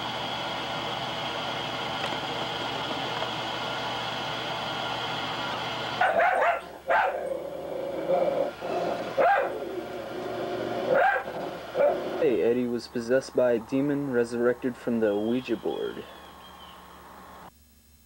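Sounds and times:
television static hiss: 0.0s - 18.0s
dog barking: 6.0s - 7.3s, 9.1s - 9.6s, 10.9s - 12.2s.

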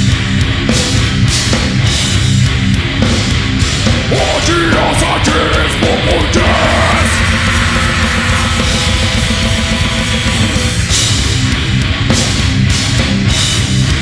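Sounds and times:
heavy metal band playing: 0.0s - 14.0s
harsh shouted vocals: 4.0s - 10.1s.

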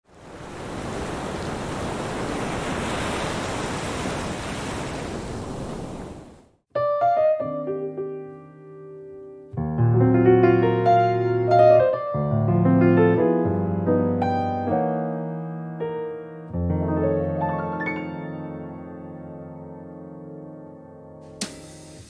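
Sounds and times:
ocean waves washing: 0.0s - 6.6s
piano music: 6.7s - 22.0s.

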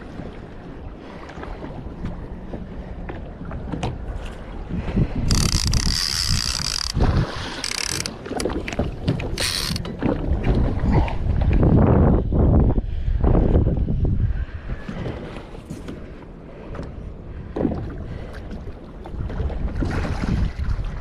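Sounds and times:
wind buffeting microphone: 0.0s - 21.0s
fishing reel drag screaming: 5.3s - 7.0s, 7.6s - 8.1s, 9.4s - 9.8s.

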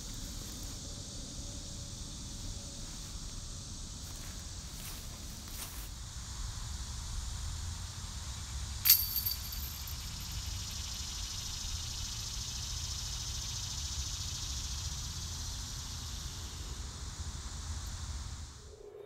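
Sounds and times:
disc striking metal basket: 8.8s - 10.2s.

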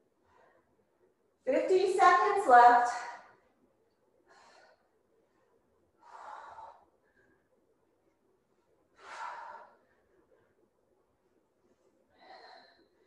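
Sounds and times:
woman breathing hard: 4.2s - 7.6s, 8.9s - 10.6s, 12.1s - 13.0s.

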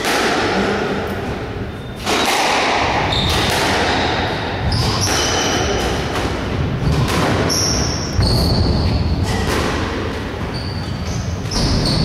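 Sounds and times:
squash ball hitting rackets and walls: 0.0s - 12.0s
shoes squeaking on wooden floor: 10.2s - 12.0s.

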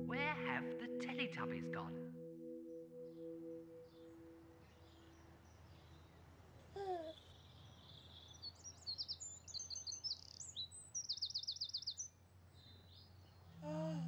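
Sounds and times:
songbirds chirping and warbling: 2.4s - 13.6s
baby cooing: 6.8s - 7.2s, 13.6s - 14.0s.

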